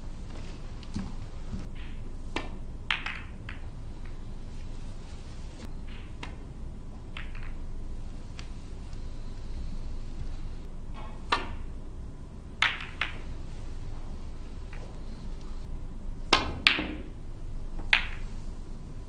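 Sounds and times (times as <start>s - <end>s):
ball rolling across cloth: 0.2s - 6.4s
snooker balls clicking and knocking: 0.2s - 11.8s, 12.4s - 15.7s, 16.3s - 18.5s.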